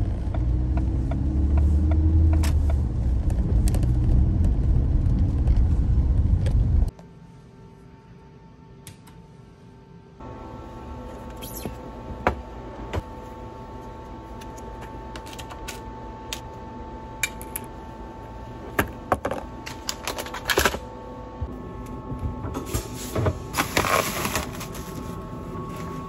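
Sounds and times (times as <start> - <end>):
steady background hum: 4.6 - 26.0
plastic sleeve crinkling: 23.6 - 25.2.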